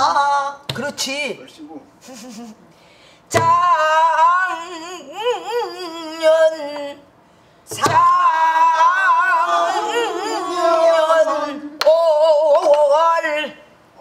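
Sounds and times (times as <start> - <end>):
woman singing with heavy vibrato: 3.3 - 7.0, 7.7 - 13.5.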